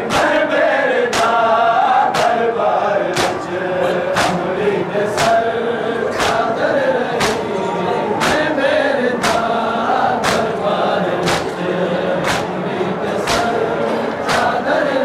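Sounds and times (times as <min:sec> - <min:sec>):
men chanting in chorus: 0:00.0 - 0:15.0
chest beating in unison: 0:02.1 - 0:08.6, 0:09.2 - 0:14.6.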